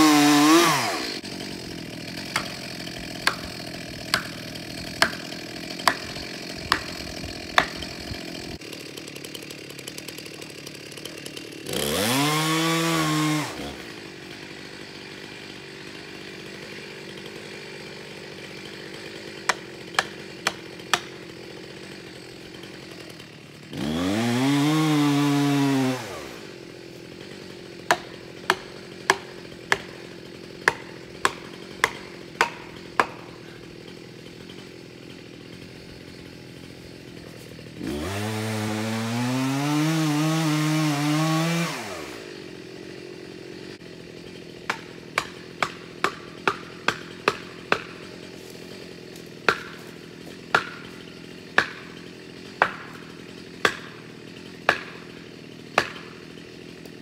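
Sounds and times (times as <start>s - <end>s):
blows driving wedges: 0.0s - 57.0s
chainsaw revving and idling: 0.0s - 57.0s.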